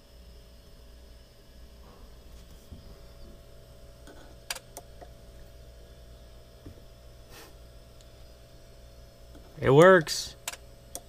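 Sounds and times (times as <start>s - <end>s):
faint steady hum: 0.0s - 11.0s
sharp clicks: 9.8s - 11.0s.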